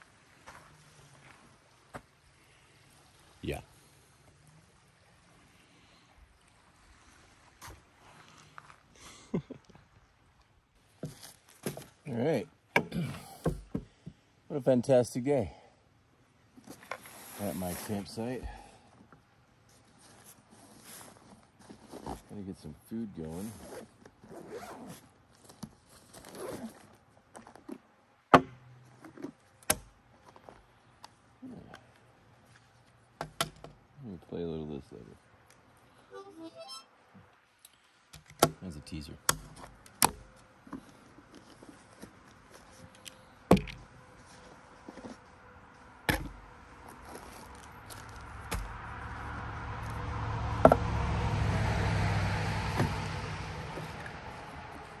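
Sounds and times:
passing engine hum: 0:44.1 - 0:55.0.

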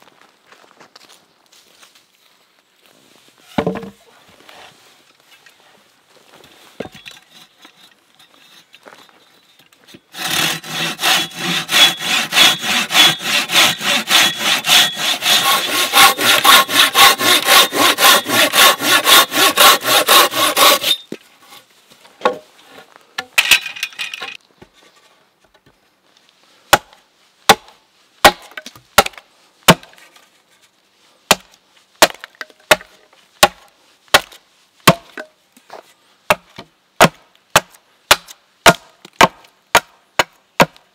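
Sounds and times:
pruning saw rasping through branch: 0:10.1 - 0:21.1
hatchet chopping wood: 0:10.2 - 0:21.0, 0:26.7 - 0:29.9, 0:31.3 - 0:35.3, 0:36.3 - 0:40.8.

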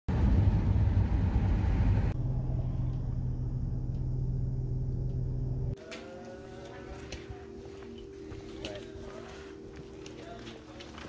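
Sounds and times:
car engine drone: 0:00.1 - 0:05.8
steady low hum: 0:00.1 - 0:10.8.

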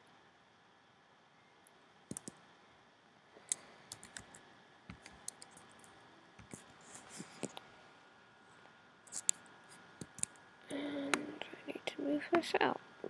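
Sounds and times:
faint steady hiss: 0:00.0 - 0:13.0
keyboard and mouse clicking: 0:02.1 - 0:02.4, 0:03.5 - 0:06.6, 0:10.0 - 0:10.4.

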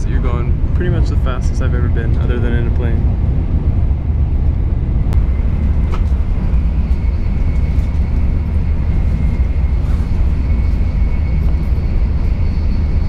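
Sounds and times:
train cabin rumble: 0:00.0 - 0:13.0
faint high whine: 0:04.0 - 0:13.0.

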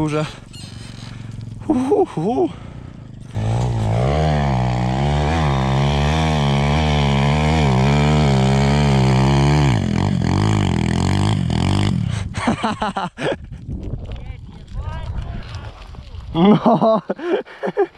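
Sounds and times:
motorcycle engine revving: 0:00.0 - 0:12.5.

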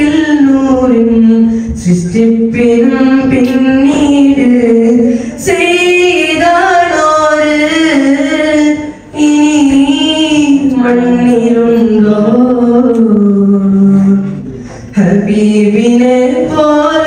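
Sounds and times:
boy singing unaccompanied: 0:00.0 - 0:14.4, 0:15.0 - 0:17.0.

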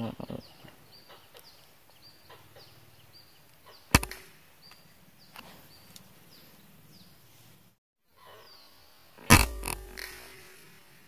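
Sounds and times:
air rifle shot: 0:03.9 - 0:04.4, 0:09.3 - 0:10.8
faint bird chirps: 0:08.1 - 0:10.6.

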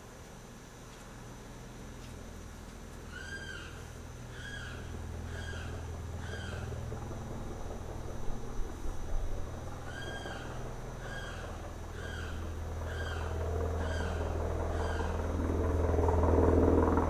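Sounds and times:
low jet rumble: 0:00.0 - 0:17.0
limpkin calling: 0:03.1 - 0:06.7, 0:09.8 - 0:15.3.

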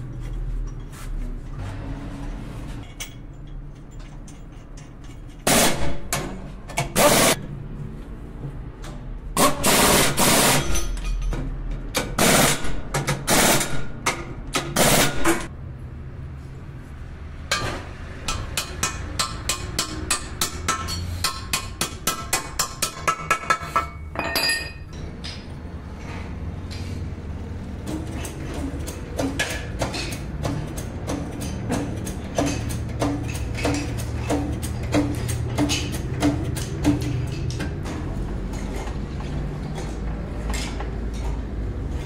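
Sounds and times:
pneumatic impact wrench rattling: 0:04.0 - 0:07.4, 0:09.4 - 0:11.2, 0:12.0 - 0:15.5
hammer tapping on steel: 0:18.2 - 0:24.0.

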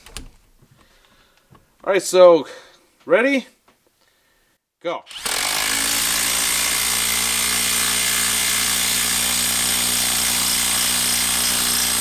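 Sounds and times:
impact driver hammering: 0:05.1 - 0:12.0.

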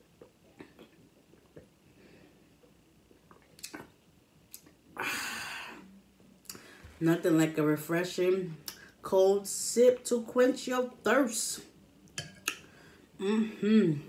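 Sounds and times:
person gulping a drink: 0:00.0 - 0:01.8, 0:02.6 - 0:04.8.

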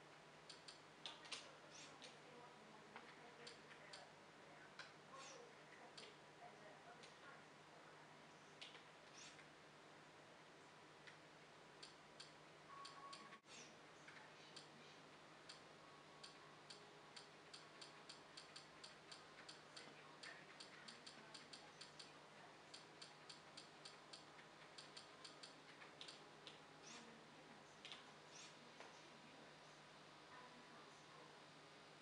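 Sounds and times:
faint menu scrolling ticks: 0:00.4 - 0:02.3, 0:03.0 - 0:04.1, 0:11.8 - 0:27.2.

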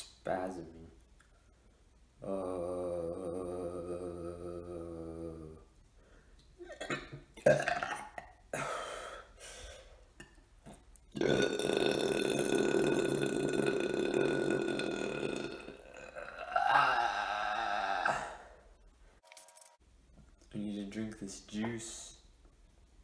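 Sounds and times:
man belching: 0:02.2 - 0:05.6, 0:06.6 - 0:08.8, 0:10.2 - 0:18.6
mouth noises: 0:02.2 - 0:05.7.

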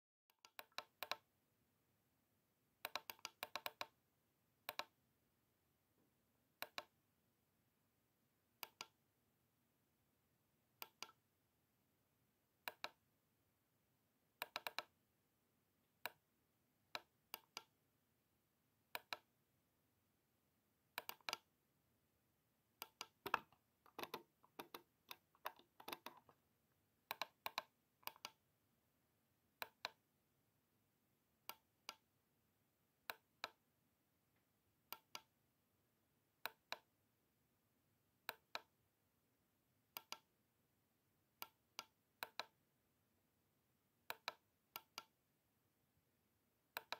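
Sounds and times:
computer mouse buttons clicking: 0:00.3 - 0:01.3, 0:02.8 - 0:04.0, 0:04.6 - 0:05.0, 0:06.6 - 0:06.9, 0:08.6 - 0:09.0, 0:10.8 - 0:11.2, 0:12.6 - 0:13.0, 0:14.4 - 0:14.9, 0:16.0 - 0:16.2, 0:16.9 - 0:17.7, 0:18.9 - 0:19.3, 0:21.0 - 0:21.5, 0:22.8 - 0:26.4, 0:27.1 - 0:28.4, 0:29.6 - 0:30.0, 0:31.4 - 0:32.0, 0:33.1 - 0:33.6, 0:34.9 - 0:35.3, 0:36.4 - 0:36.9, 0:38.3 - 0:38.7, 0:39.9 - 0:40.3, 0:41.4 - 0:42.6, 0:44.1 - 0:45.2.

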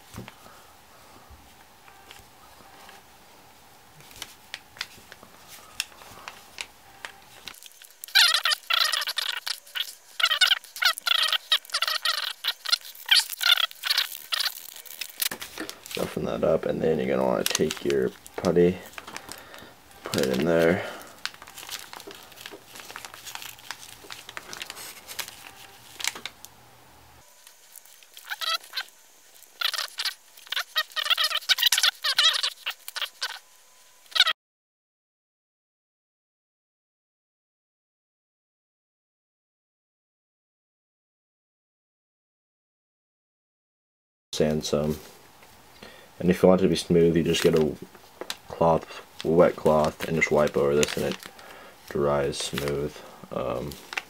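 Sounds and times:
faint handling sounds: 0:00.0 - 0:26.6, 0:46.3 - 0:54.0
squelchy squeaks: 0:07.8 - 0:15.3, 0:28.1 - 0:33.4, 0:34.1 - 0:34.3.

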